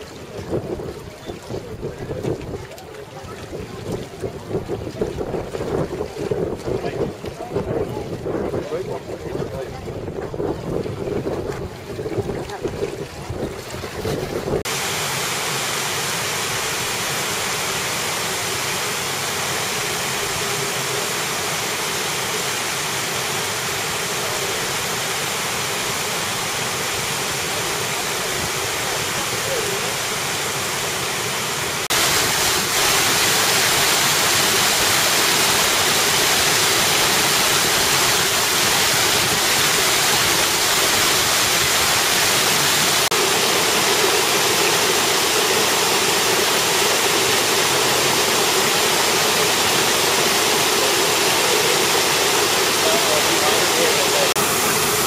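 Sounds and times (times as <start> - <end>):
fountain water splashing: 0.0 - 55.0
wind buffeting microphone: 0.1 - 14.7.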